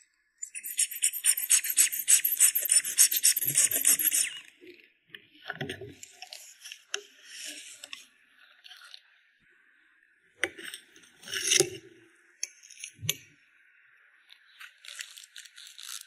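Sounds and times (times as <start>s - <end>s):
metal spatula scraping powder: 0.5s - 4.4s, 11.2s - 11.7s.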